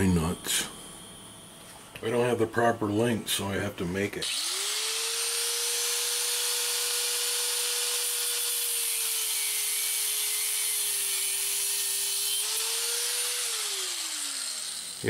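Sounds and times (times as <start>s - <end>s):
angle grinder cutting steel bolt: 4.2s - 15.0s.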